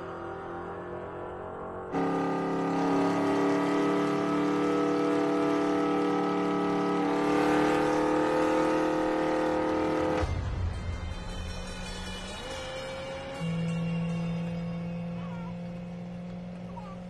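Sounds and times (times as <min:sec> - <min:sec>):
car engine revving high: 0:00.0 - 0:10.3
deep engine rumble: 0:02.0 - 0:17.0.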